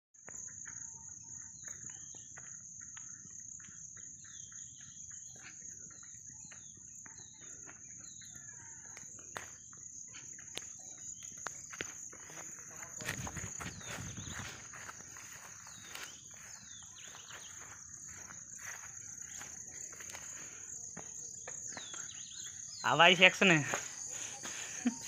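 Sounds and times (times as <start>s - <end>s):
high-pitched insect drone: 0.3s - 25.0s.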